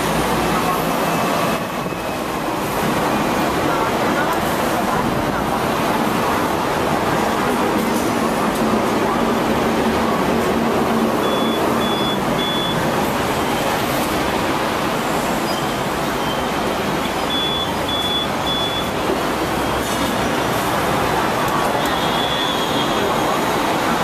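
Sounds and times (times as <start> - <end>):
tram wheels rumbling on rails: 0.0 - 24.0
short high beeps: 11.2 - 12.8, 17.3 - 18.9.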